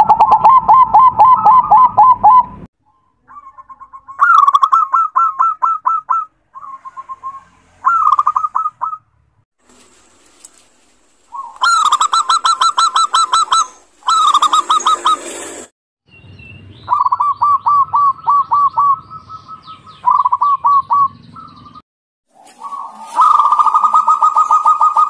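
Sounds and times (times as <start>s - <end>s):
doves cooing: 0.0s - 2.5s, 3.3s - 9.0s, 11.2s - 15.4s, 16.9s - 21.6s, 22.4s - 25.0s.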